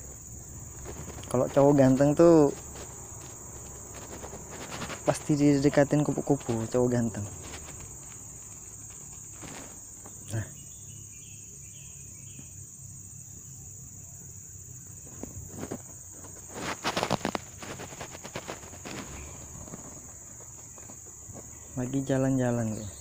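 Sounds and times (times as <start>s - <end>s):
rustling and knocks: 0.0s - 10.3s, 15.0s - 22.1s
high-pitched insect chorus: 0.0s - 23.0s.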